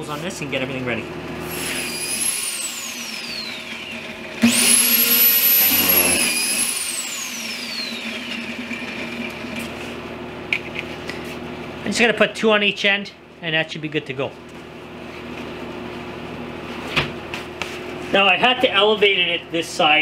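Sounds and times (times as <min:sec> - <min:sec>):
drilling machine motor whine: 0:01.4 - 0:09.9.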